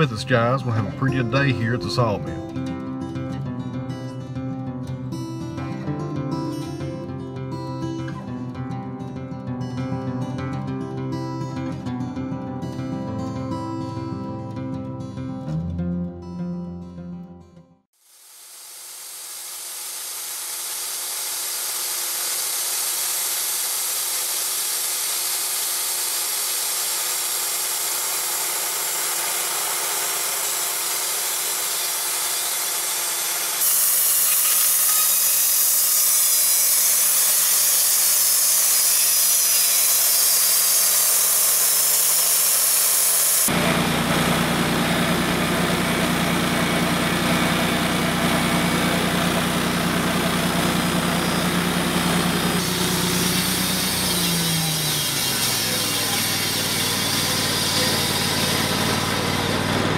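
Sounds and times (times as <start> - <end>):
sawmill running: 0.0 - 3.1, 18.0 - 59.9
band blade hissing: 18.1 - 43.5, 51.0 - 59.6
engine humming: 43.5 - 59.9.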